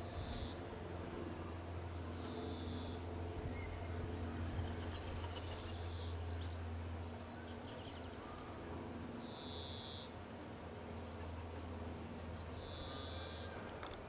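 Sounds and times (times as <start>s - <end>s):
songbirds singing: 0.0s - 0.8s, 2.0s - 10.2s, 12.2s - 13.9s
steady low hum: 0.0s - 14.0s.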